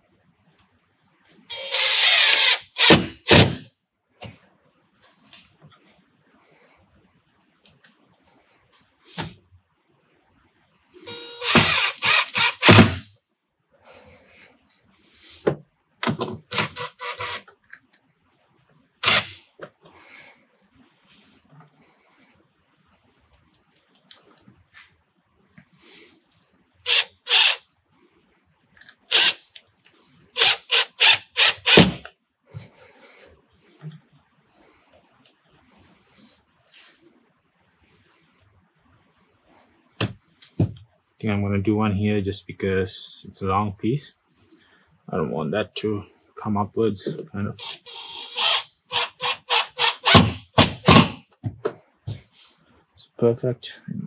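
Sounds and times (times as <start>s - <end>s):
cordless drill driving screw: 1.5s - 3.6s, 11.1s - 13.0s, 16.5s - 17.5s, 19.0s - 19.4s, 26.9s - 27.6s, 29.1s - 29.4s, 30.4s - 32.1s, 47.5s - 51.2s.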